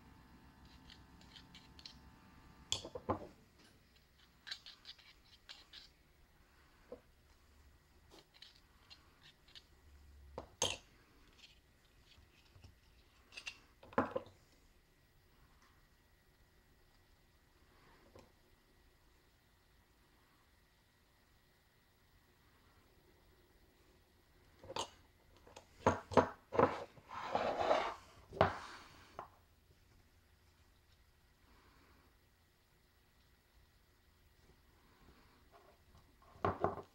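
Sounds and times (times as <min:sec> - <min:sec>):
short rubbing scrape: 0:26.7 - 0:28.9.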